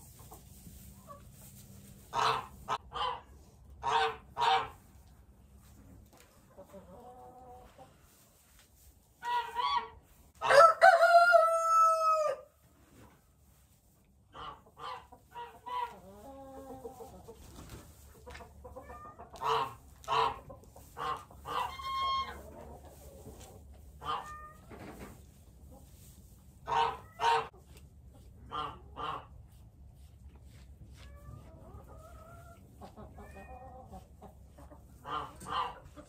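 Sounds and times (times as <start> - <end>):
chickens clucking: 0.0 - 12.0, 12.7 - 36.0
rooster crowing: 10.4 - 12.5.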